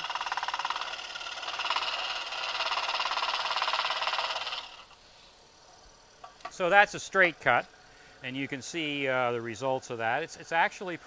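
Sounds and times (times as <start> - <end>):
scroll saw cutting wood: 0.0 - 5.0.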